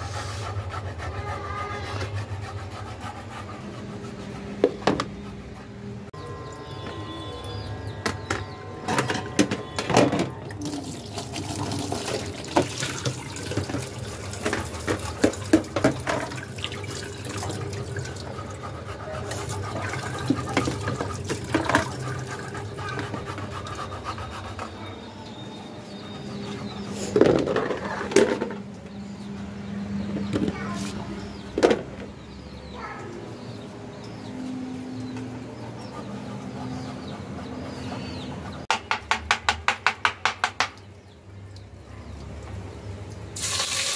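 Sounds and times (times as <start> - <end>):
dishes clattering in sink: 8.1 - 18.1, 19.7 - 23.3
water running from tap: 10.6 - 18.5, 19.3 - 22.6, 41.6 - 43.9.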